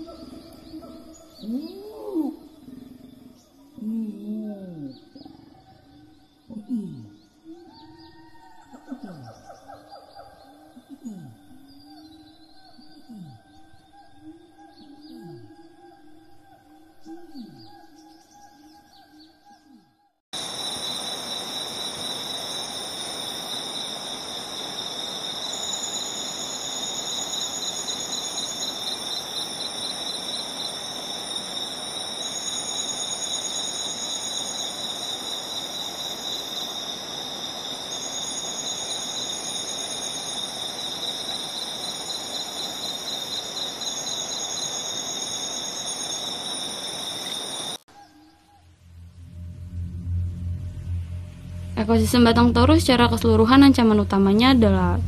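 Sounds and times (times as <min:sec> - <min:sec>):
insect chorus trilling: 0:00.0 - 0:19.4, 0:20.4 - 0:55.0
background hiss: 0:20.4 - 0:47.8
higher insect trill: 0:20.4 - 0:55.0.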